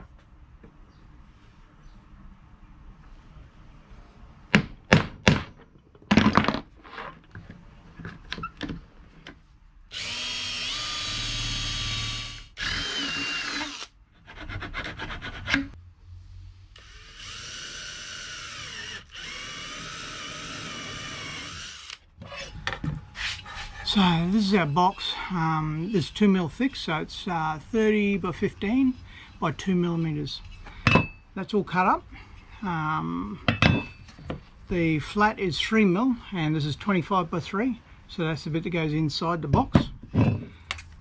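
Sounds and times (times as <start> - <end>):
cordless drill boring metal: 9.9 - 13.9, 16.8 - 22.0.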